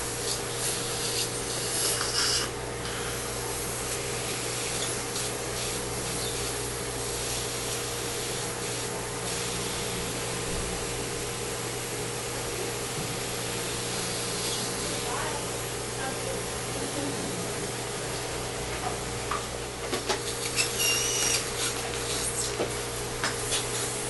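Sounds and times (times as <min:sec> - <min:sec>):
faint electrical hum: 0:00.0 - 0:24.0
dental equipment hissing: 0:00.1 - 0:09.9, 0:13.2 - 0:15.4, 0:20.4 - 0:22.6.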